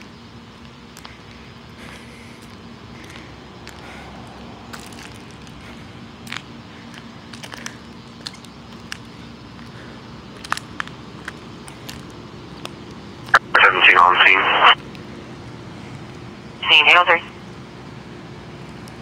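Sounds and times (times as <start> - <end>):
steady low hum: 0.0 - 19.0
footsteps on dry leaves and grass: 4.7 - 6.4.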